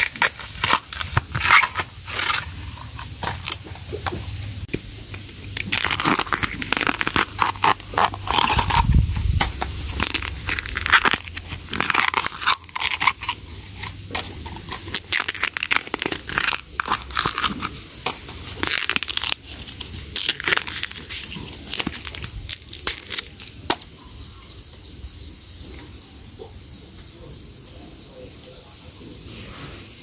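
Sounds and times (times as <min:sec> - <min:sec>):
bamboo sheaths tearing and crackling: 0:00.0 - 0:24.0.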